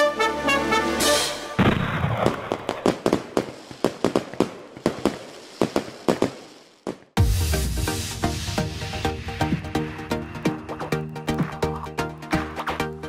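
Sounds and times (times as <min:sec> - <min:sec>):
fireworks pops and crackles: 0:01.6 - 0:07.2.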